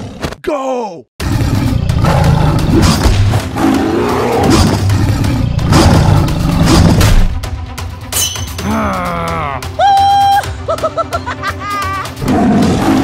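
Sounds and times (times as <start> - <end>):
big cat roaring and growling: 1.2 - 7.0
background music: 1.2 - 13.0.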